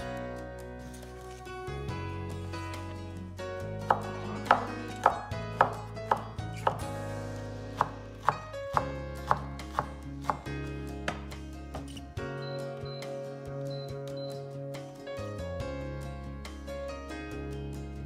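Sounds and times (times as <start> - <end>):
background music: 0.0 - 18.0
knife chopping on cutting board: 3.9 - 6.9, 7.8 - 10.5.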